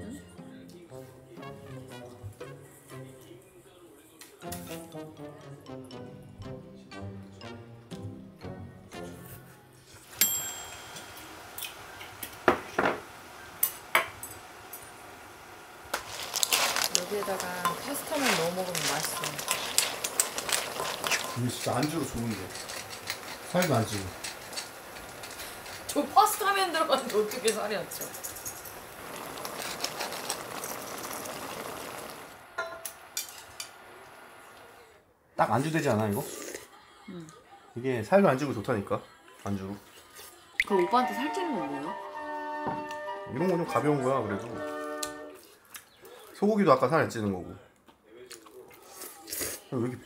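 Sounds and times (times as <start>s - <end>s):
kitchen utensils clicking and clinking: 10.0s - 15.2s, 15.9s - 33.8s
faint steady hiss: 10.0s - 36.2s
broth simmering and bubbling: 11.3s - 34.9s.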